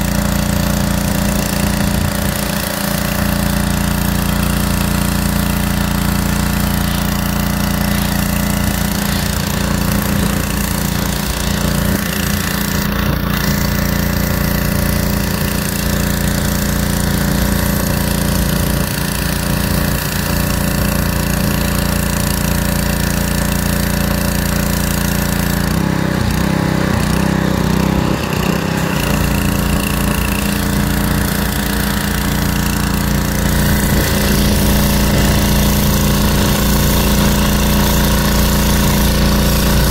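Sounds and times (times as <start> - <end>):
pressure washer drone: 0.0 - 39.9
water jet hissing: 27.0 - 39.9.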